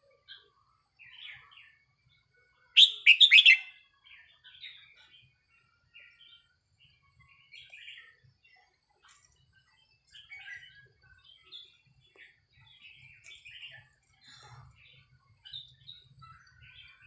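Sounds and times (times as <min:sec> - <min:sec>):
bird singing whistled notes: 0:02.7 - 0:05.3, 0:10.0 - 0:14.0.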